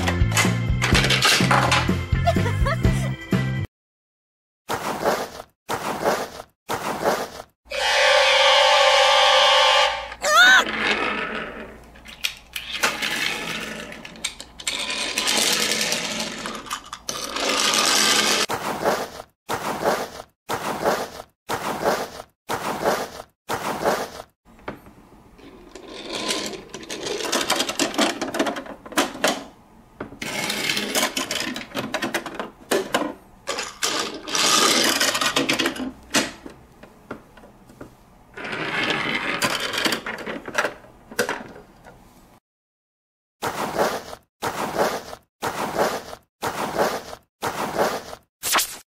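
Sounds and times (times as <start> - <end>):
plastic toy doors clicking and rattling: 0.3 - 1.9, 25.6 - 29.6, 30.2 - 36.6, 38.4 - 42.0
toy bus rolled on tabletop: 10.6 - 11.8, 12.6 - 18.5, 25.4 - 29.0, 30.2 - 35.9, 38.3 - 42.0.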